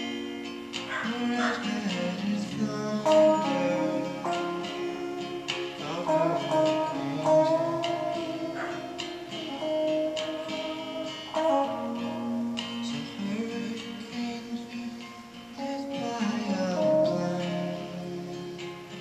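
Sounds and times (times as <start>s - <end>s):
acoustic guitar strummed chords: 0.0s - 19.0s
electric guitar lead notes: 0.0s - 19.0s.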